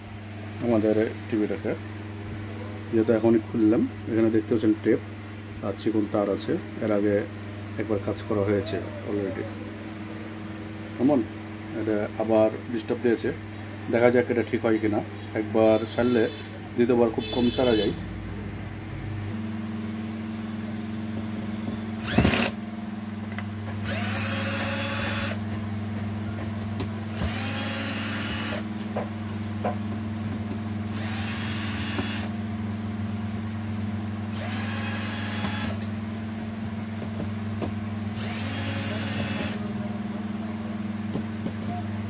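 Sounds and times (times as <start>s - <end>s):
steady low hum: 0.0s - 42.0s
cordless drill motor whirring: 22.0s - 22.6s, 23.8s - 25.4s, 27.1s - 28.7s, 30.9s - 32.4s, 34.3s - 35.9s, 38.1s - 39.6s.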